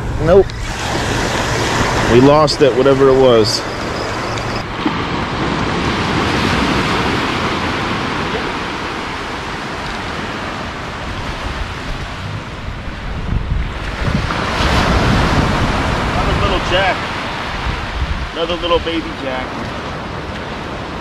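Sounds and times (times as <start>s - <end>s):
surf washing up beach: 0.0s - 21.0s
wind rumbling on microphone: 0.0s - 21.0s.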